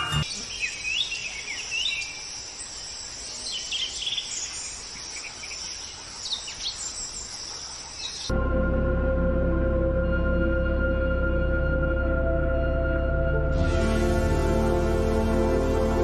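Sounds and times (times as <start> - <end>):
birds chirping: 0.0 - 8.3.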